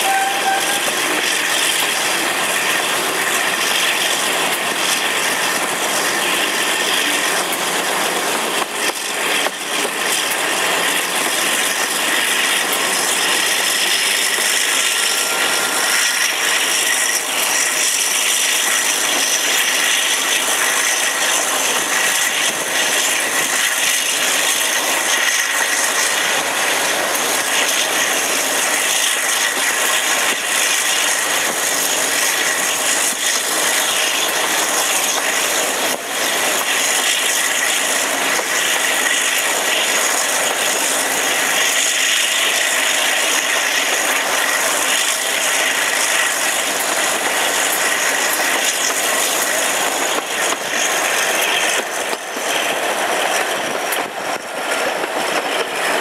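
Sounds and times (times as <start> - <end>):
diesel locomotive engine: 0.0 - 56.0
high rising whine: 13.8 - 18.4.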